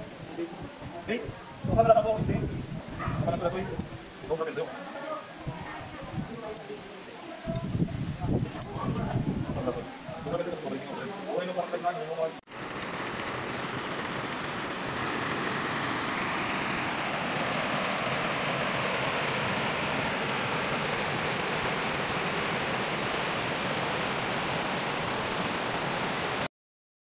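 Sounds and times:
water rushing over rocks: 12.5s - 26.5s.

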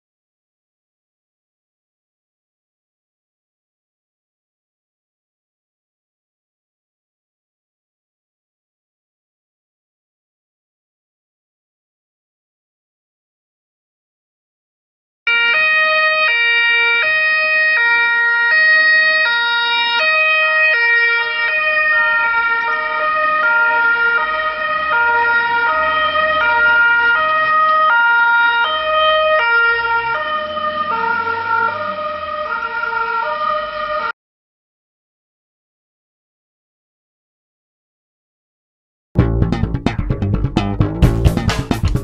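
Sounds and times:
two-tone police siren: 15.3s - 34.2s
engine and road rumble: 21.9s - 34.0s, 39.2s - 42.0s.

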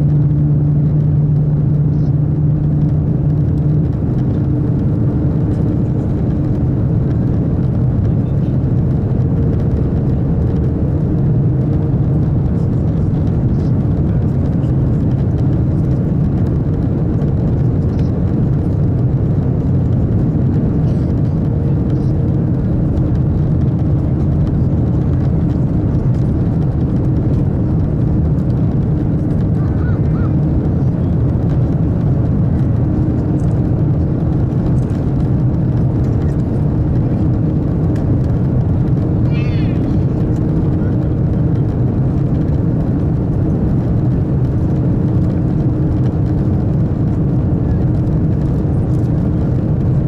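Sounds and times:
deep rumble inside train cabin: 0.0s - 50.0s.

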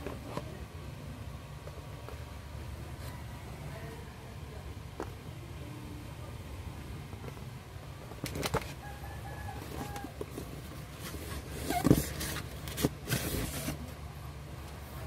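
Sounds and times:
cardboard scraping: 9.4s - 14.0s
cardboard rustling and knocking: 9.7s - 13.9s.

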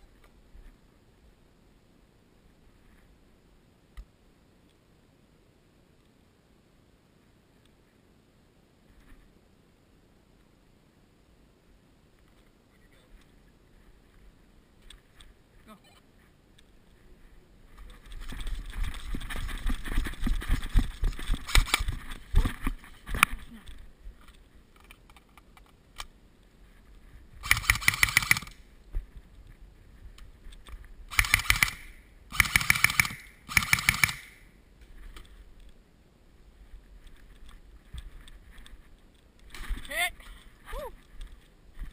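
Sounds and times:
rumbling thudding movement noise: 16.3s - 24.8s
airsoft gun full-auto bursts: 21.4s - 21.9s, 27.4s - 28.6s, 31.1s - 34.5s.

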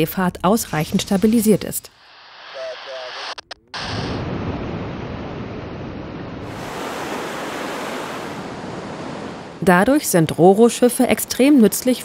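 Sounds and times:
wind and sea water rushing: 3.8s - 11.8s.

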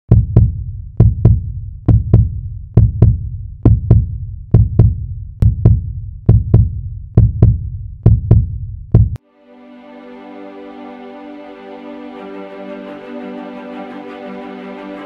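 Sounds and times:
heartbeat double thumps: 0.1s - 9.2s.

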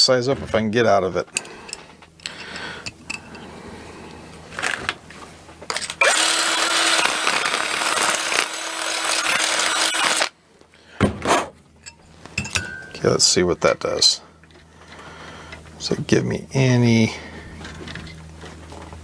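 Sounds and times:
electric drill spinning: 5.8s - 10.3s.

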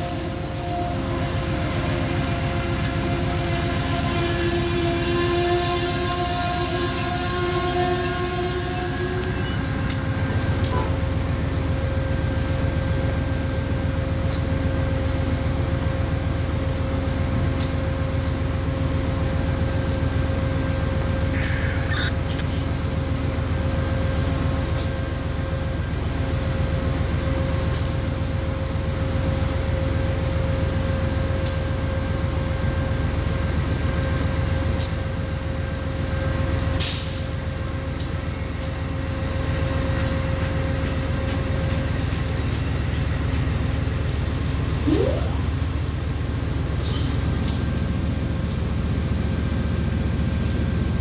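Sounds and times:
vehicle running low rumble: 42.1s - 46.6s
short rising squeal: 44.8s - 45.6s.

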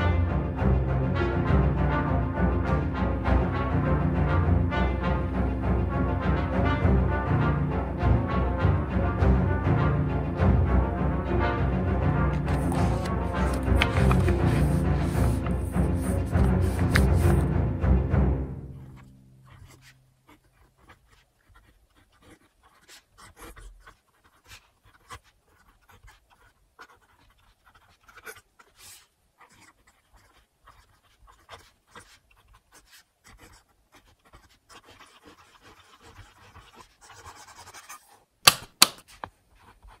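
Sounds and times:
pen nib scratching on paper: 12.4s - 17.5s, 18.7s - 40.0s.

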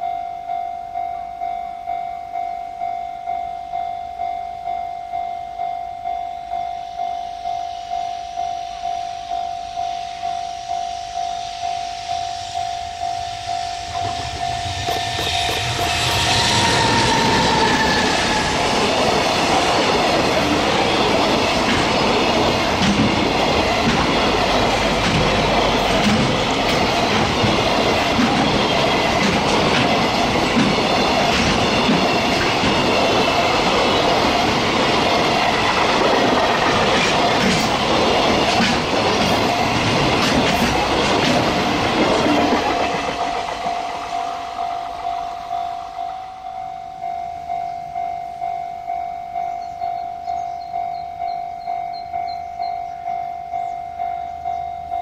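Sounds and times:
level-crossing bell ringing: 0.0s - 36.0s, 42.8s - 55.0s
freight train passing: 0.0s - 55.0s
wheels clattering over rail joints: 14.2s - 44.4s.

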